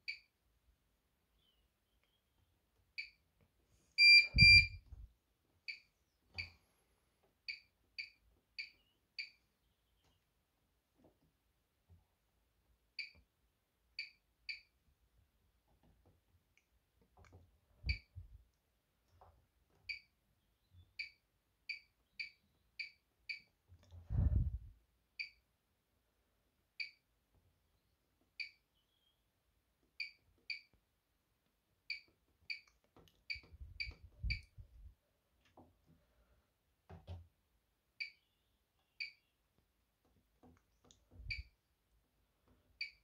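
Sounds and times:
short high beeps: 0:04.0 - 0:04.8
dull low thumps: 0:04.3 - 0:05.1, 0:24.0 - 0:24.7.

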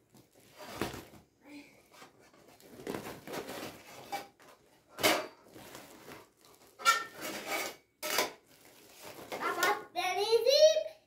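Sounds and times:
plastic sack rustling: 0:02.4 - 0:07.5, 0:08.4 - 0:09.8.

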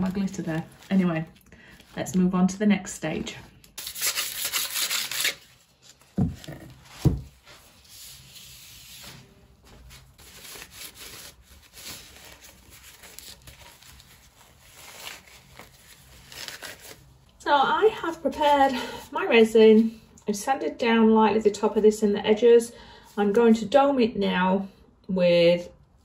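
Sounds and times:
paper towel rubbing resin: 0:04.0 - 0:17.1.

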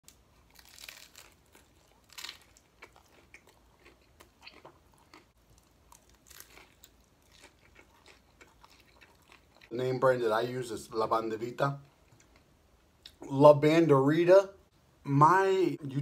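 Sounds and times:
taco shells crunching: 0:00.1 - 0:09.7.

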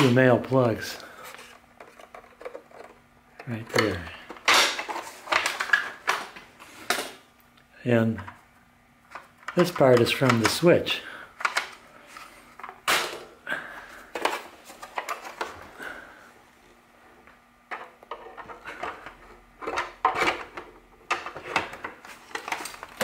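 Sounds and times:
plastic parts clicking and knocking: 0:01.3 - 0:07.2, 0:09.1 - 0:10.6, 0:11.4 - 0:11.8, 0:17.7 - 0:23.0.

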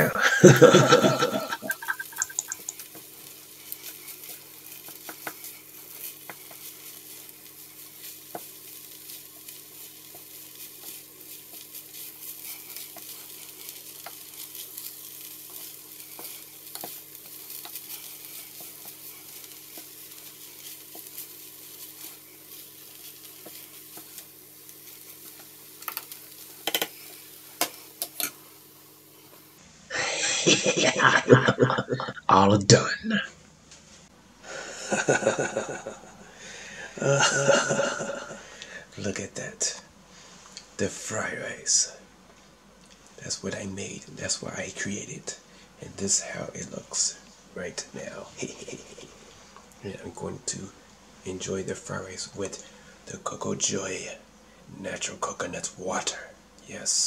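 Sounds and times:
rice sizzling in a frying pan: 0:00.0 - 0:29.7, 0:34.2 - 0:57.0
wooden spatula scraping a pan: 0:00.7 - 0:28.3.

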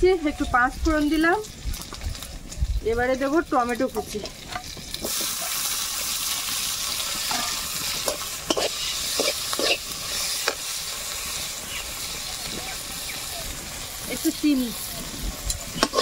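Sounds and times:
food sizzling in hot oil: 0:00.0 - 0:16.0
pan scraping while stirring: 0:07.1 - 0:10.6, 0:15.8 - 0:16.0.

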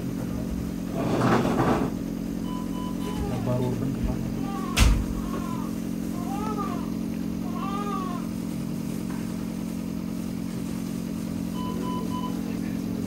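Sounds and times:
low equipment hum: 0:00.0 - 0:13.0
newborn whimpering cry: 0:03.0 - 0:03.6, 0:04.4 - 0:08.3
short electronic beep: 0:11.5 - 0:12.4.

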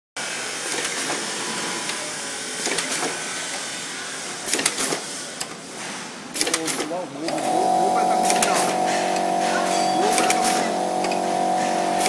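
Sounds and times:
packing machine whirr: 0:00.2 - 0:12.0
machine clicking and clatter: 0:02.6 - 0:03.2, 0:04.4 - 0:09.4.

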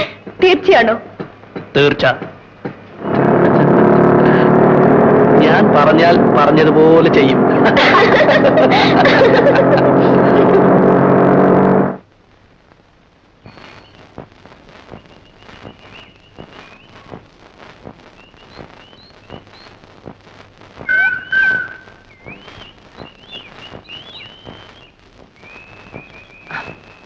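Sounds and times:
birds chirping and whistling: 0:13.5 - 0:14.1, 0:14.9 - 0:17.2, 0:18.1 - 0:19.8, 0:20.8 - 0:27.0
loud whistled bird call: 0:13.5 - 0:14.1, 0:14.9 - 0:17.2, 0:18.1 - 0:19.8, 0:20.8 - 0:27.0.

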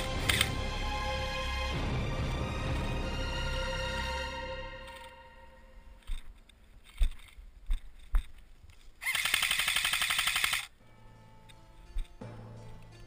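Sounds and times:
airsoft gun full-auto burst: 0:09.0 - 0:10.7.

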